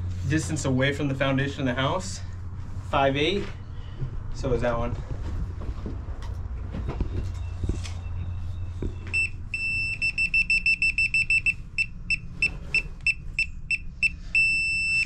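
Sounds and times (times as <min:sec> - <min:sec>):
laser receiver beeping: 0:09.2 - 0:15.0.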